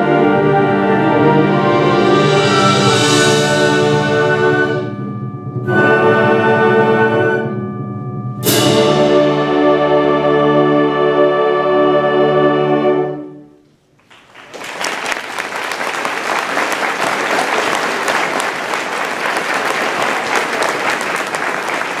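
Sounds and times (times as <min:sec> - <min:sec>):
concert band chord: 0:00.1 - 0:13.4
audience applause: 0:14.0 - 0:22.0.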